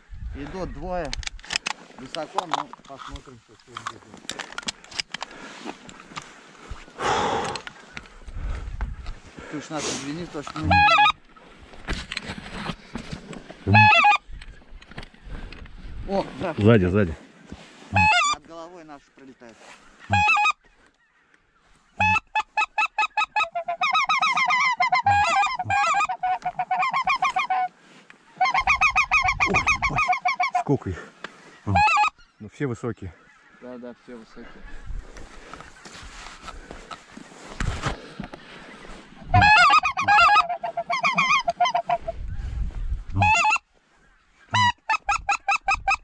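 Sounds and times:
goose calls honking: 0:10.4 - 0:11.2, 0:13.7 - 0:14.2, 0:17.9 - 0:18.4, 0:20.0 - 0:20.6, 0:22.0 - 0:27.7, 0:28.3 - 0:30.9, 0:31.5 - 0:32.3, 0:39.2 - 0:42.2, 0:43.2 - 0:43.6, 0:44.5 - 0:46.0.

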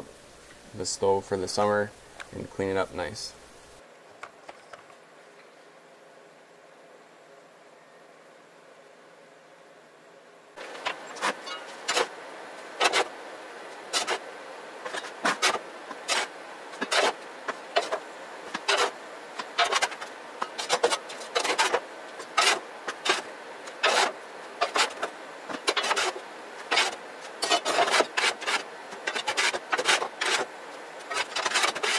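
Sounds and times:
shovel scraping ash: 0:10.6 - 0:12.1, 0:12.7 - 0:13.1, 0:13.8 - 0:14.2, 0:14.8 - 0:31.9.

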